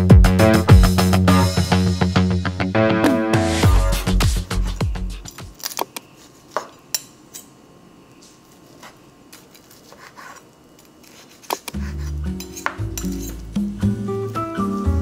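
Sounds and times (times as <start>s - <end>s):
background music: 0.0s - 5.4s, 11.8s - 15.0s.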